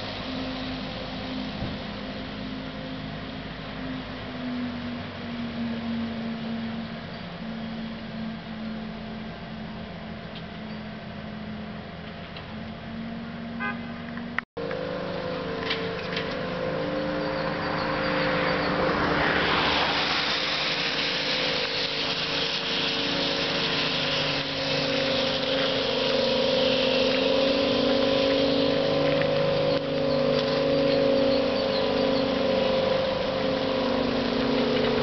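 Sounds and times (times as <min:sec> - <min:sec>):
tyres hissing on wet road: 0:00.0 - 0:13.3, 0:14.6 - 0:35.0
trolleybus electric whine: 0:00.0 - 0:35.0.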